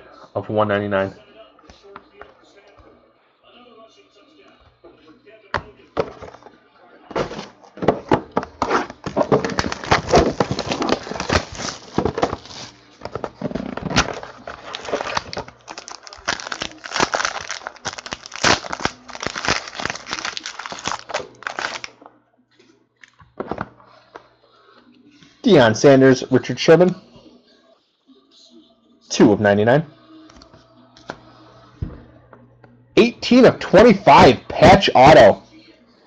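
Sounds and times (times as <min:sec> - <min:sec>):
foil wrapper tearing and crinkling: 0:08.6 - 0:12.8, 0:13.6 - 0:21.9.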